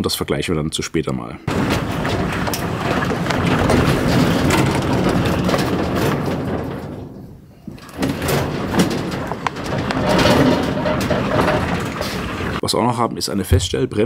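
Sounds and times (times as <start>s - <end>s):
casters rolling over wooden decking: 1.5s - 12.6s.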